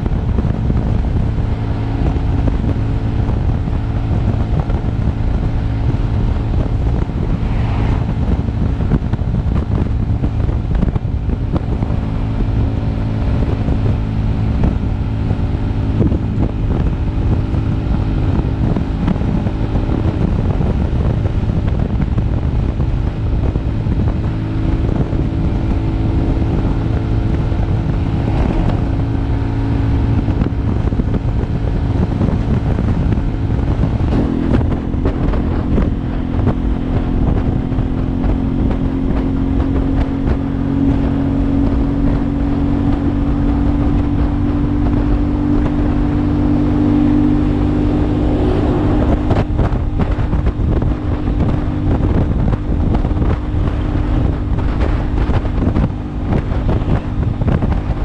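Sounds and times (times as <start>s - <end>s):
motorcycle engine running: 0.0s - 58.0s
wind buffeting microphone: 0.0s - 58.0s.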